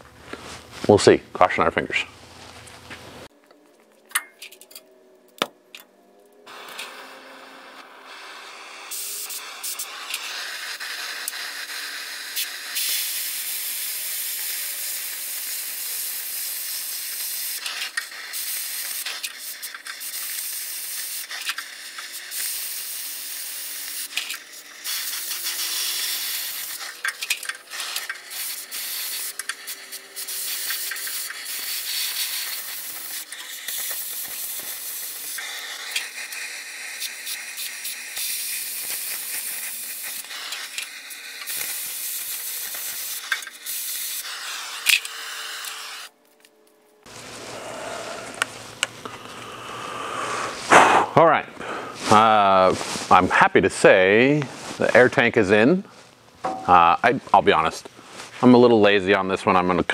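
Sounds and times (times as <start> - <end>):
molten metal crackles: 2.6 - 49.6
cutting torch hissing: 6.4 - 46.2, 47.0 - 54.2.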